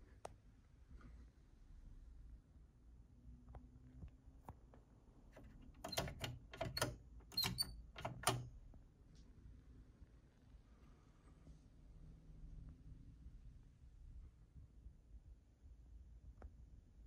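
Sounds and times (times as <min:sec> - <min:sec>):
sharp clicks and knocks: 0:05.3 - 0:08.5.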